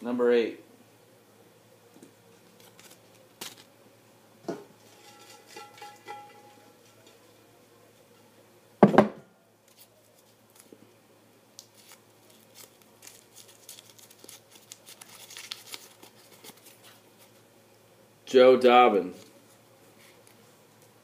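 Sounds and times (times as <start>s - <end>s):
paper slips rustling and crinkling: 11.7s - 17.0s.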